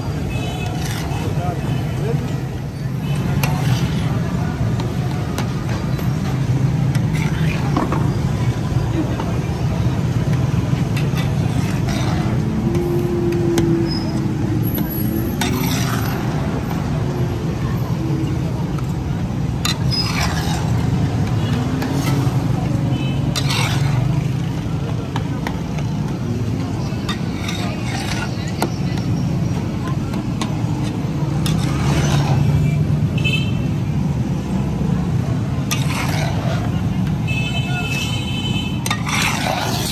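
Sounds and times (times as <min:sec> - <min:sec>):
street noise rumble: 0:00.0 - 0:39.9
metal spatula scraping steel pan: 0:00.2 - 0:01.9, 0:10.6 - 0:13.1, 0:14.9 - 0:16.5, 0:19.6 - 0:24.5, 0:27.0 - 0:28.7, 0:31.3 - 0:32.8, 0:35.6 - 0:39.9.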